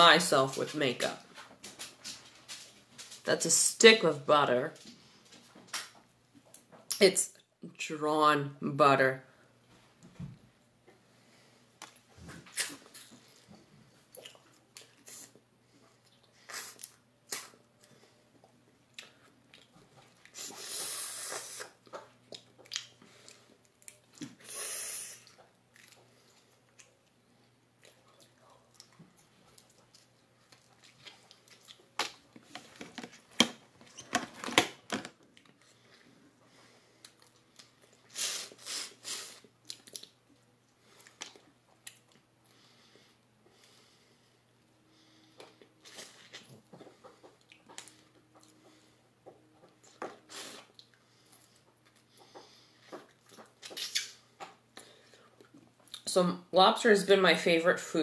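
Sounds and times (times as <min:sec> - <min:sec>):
chewing: 0:14.1 - 0:20.6, 0:21.3 - 0:24.4, 0:25.2 - 0:32.6, 0:45.3 - 0:56.0.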